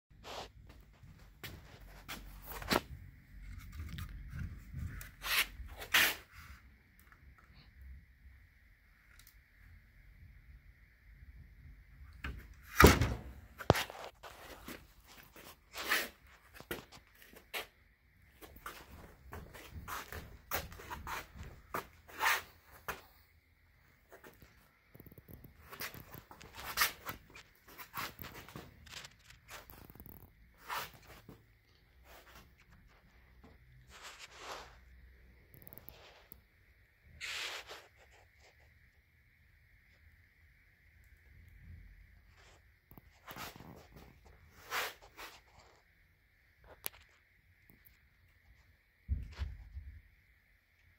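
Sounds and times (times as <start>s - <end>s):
handling rustles and scrapes: 0.1s - 7.1s, 13.6s - 23.2s, 24.1s - 35.1s, 37.2s - 38.7s, 42.3s - 46.0s.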